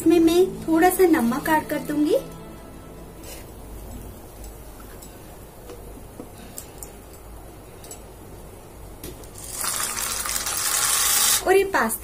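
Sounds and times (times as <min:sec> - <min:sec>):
water boiling in saucepan: 0:03.2 - 0:12.0.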